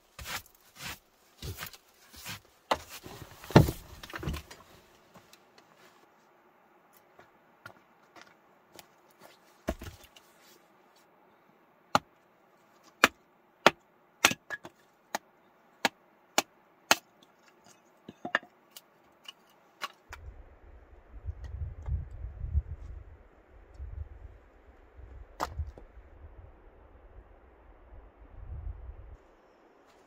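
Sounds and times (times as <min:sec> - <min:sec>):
hatchet chopping wood: 0:13.0 - 0:17.1
low rumble: 0:20.1 - 0:29.2.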